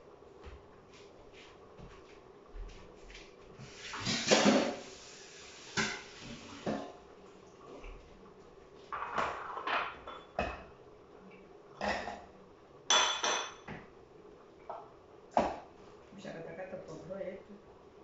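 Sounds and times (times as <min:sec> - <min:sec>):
dishes clinking and knocking: 0:08.9 - 0:10.8, 0:12.9 - 0:13.9.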